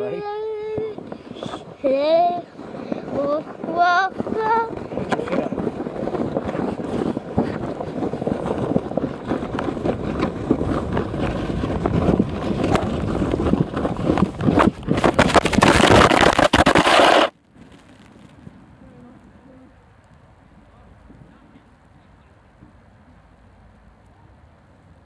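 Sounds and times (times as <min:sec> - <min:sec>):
sled scraping over snow: 0:00.0 - 0:18.3
wind on microphone: 0:00.0 - 0:22.0.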